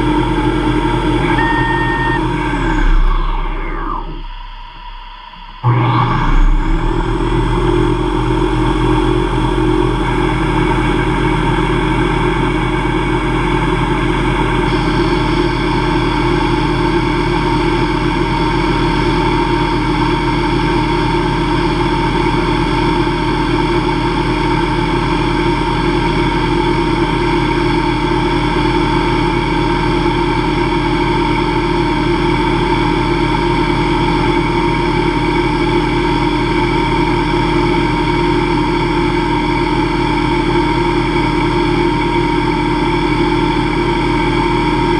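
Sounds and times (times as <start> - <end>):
higher tone: 0.0 - 9.1
lathe spindle whining: 0.0 - 11.0.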